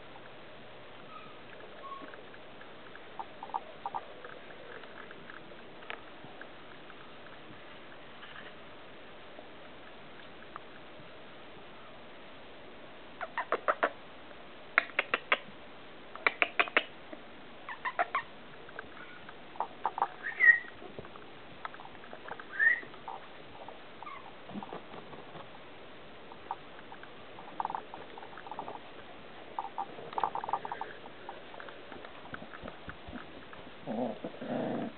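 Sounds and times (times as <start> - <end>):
puppies making sharp sounds: 13.2 - 14.0, 17.6 - 18.3, 19.0 - 20.8, 21.8 - 24.7, 29.5 - 32.7.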